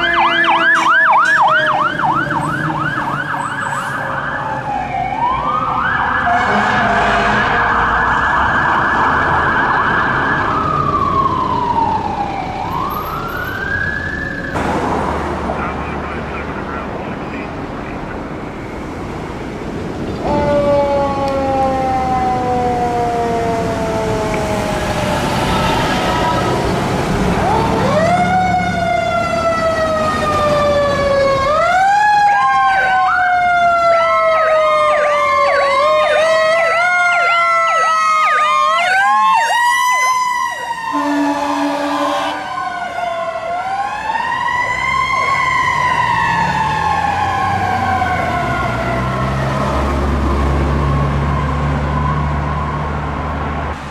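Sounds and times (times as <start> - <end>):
fast yelping siren: 0.0 - 14.5, 27.3 - 49.4
air horn blast: 6.3 - 7.8, 40.9 - 42.5.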